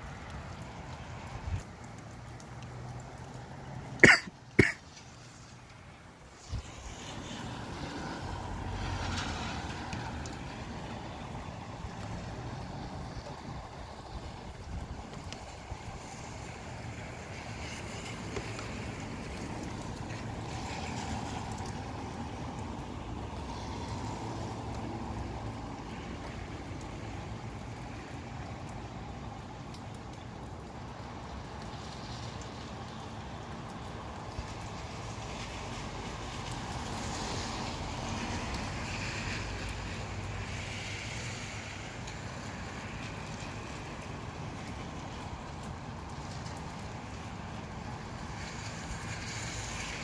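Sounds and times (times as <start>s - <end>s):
faint rain ticks: 0.0s - 50.0s
wind rushing through trees: 0.0s - 50.0s
wind rumble on microphone: 6.2s - 27.8s.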